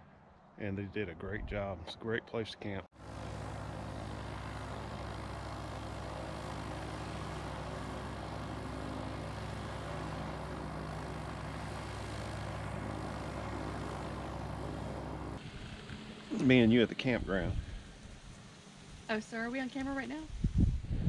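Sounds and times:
drone motors humming: 3.0 - 19.1.

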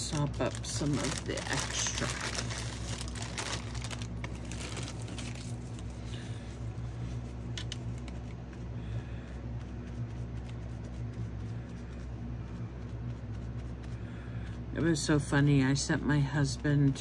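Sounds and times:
steady low hum: 0.0 - 17.0
wet wipe dabbing on paper: 6.8 - 17.0.

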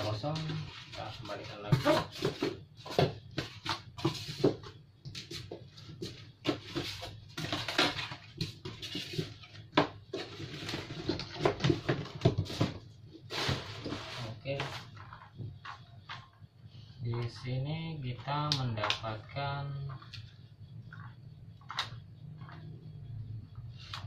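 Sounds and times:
cardboard boxes knocking and rustling: 0.4 - 15.6.

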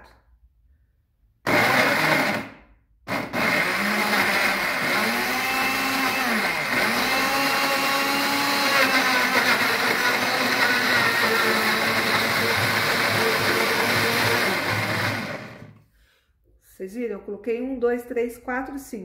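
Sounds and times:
blender motor whining: 1.5 - 15.8.

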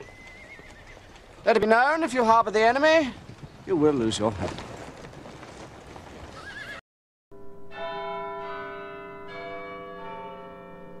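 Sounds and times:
horse whinnying: 0.0 - 1.4, 6.3 - 6.8
bell-like chimes ringing: 7.4 - 11.0.

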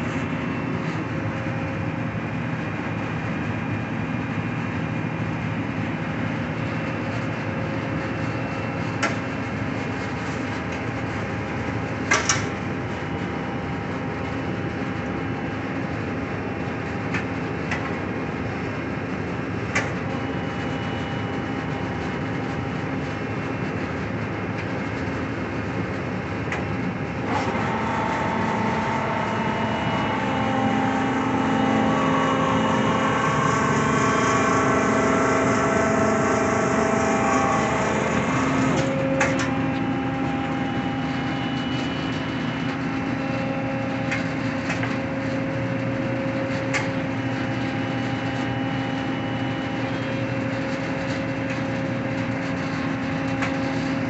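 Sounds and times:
band saw humming: 27.2 - 41.8
whining tones: 27.2 - 44.3.

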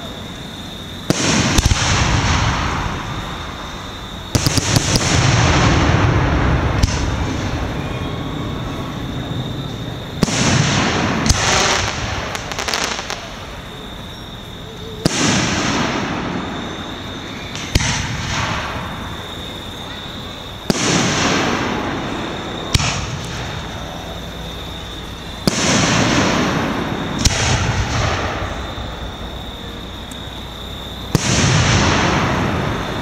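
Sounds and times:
crackling firework reports: 0.0 - 33.0
rumbling echo: 1.1 - 14.0, 20.6 - 33.0
firework shells bursting: 10.1 - 13.6.

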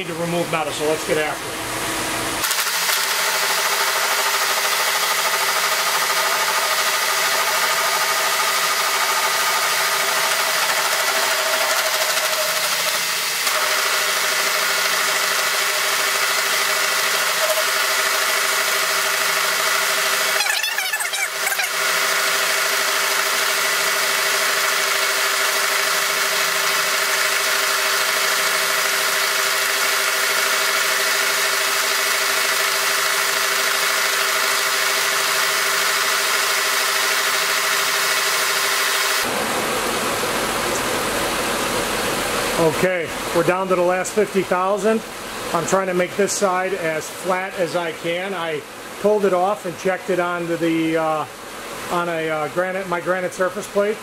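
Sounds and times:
steady machine hum: 0.0 - 54.0
milling machine cutting steel: 2.4 - 39.4.

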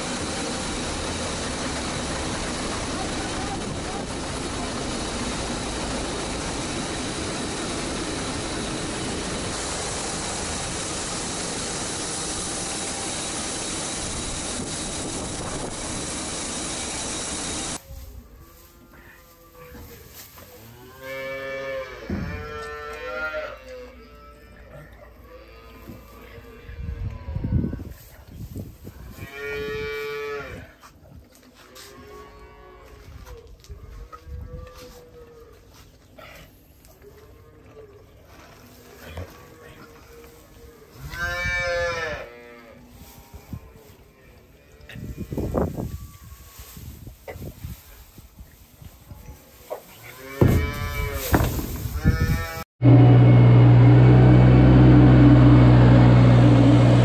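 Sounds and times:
wheel loader diesel engine running: 0.0 - 17.8, 52.8 - 57.0.

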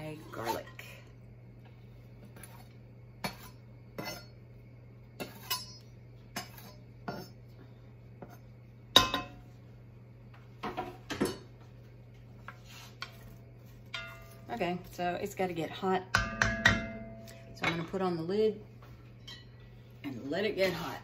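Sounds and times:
knife scraping on board and pot: 2.2 - 4.4, 5.2 - 7.4.

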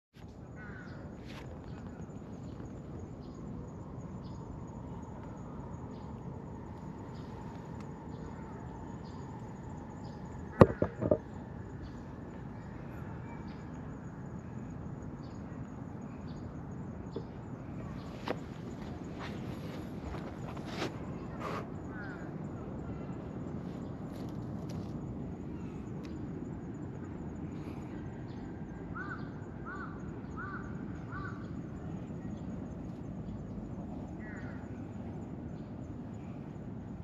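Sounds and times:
outdoor background noise: 0.1 - 37.0
short bumps: 10.6 - 11.3, 18.1 - 21.1.

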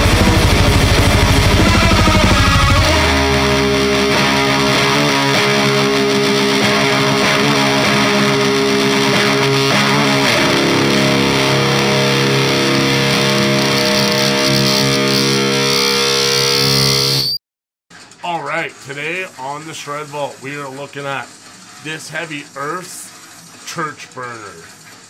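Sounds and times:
distorted electric guitar: 0.0 - 17.3.

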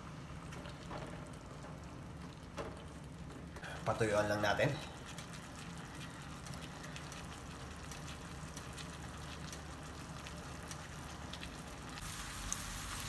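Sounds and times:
shrimp sizzling in a frying pan: 3.9 - 13.0
small pops and crackles: 5.0 - 12.6.

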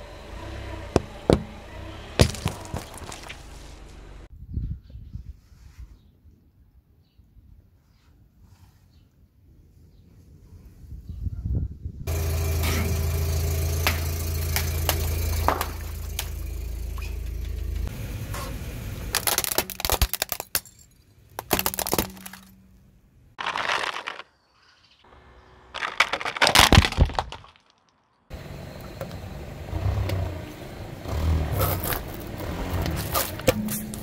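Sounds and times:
car engine hum: 0.0 - 4.3, 12.1 - 20.2, 28.3 - 34.0
plastic toys cracking under tyre: 2.2 - 3.4, 19.1 - 20.8, 21.4 - 22.6, 23.4 - 24.4, 25.7 - 28.0.

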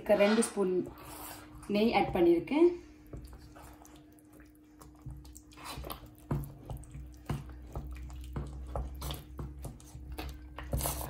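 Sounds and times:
spoon stirring thick halwa: 2.8 - 11.0.

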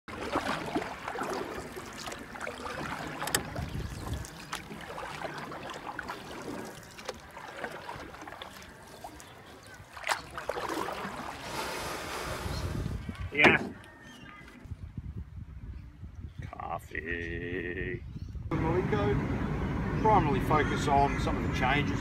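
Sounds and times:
wind rumbling on microphone: 3.2 - 4.4, 11.4 - 20.0.

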